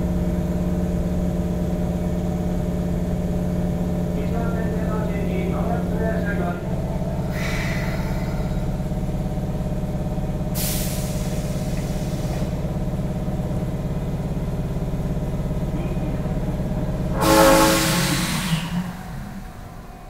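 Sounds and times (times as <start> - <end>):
train equipment humming: 0.0 - 20.0
air brake hiss: 7.2 - 8.8, 10.5 - 12.6, 17.2 - 19.5.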